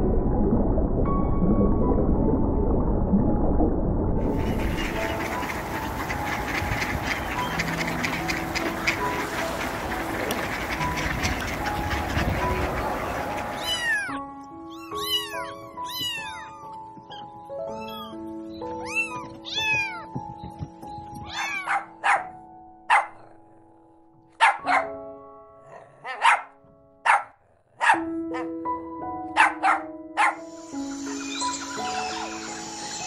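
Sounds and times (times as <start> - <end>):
background music: 0.0 - 33.0
kittens mewing: 13.6 - 18.2, 18.8 - 20.2
puppy yapping: 26.0 - 26.5.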